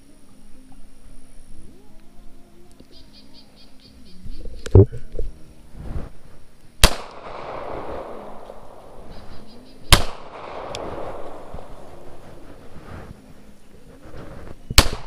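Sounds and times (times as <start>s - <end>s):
pistol shots with echo: 6.8s - 9.2s, 9.8s - 12.2s, 14.7s - 15.0s.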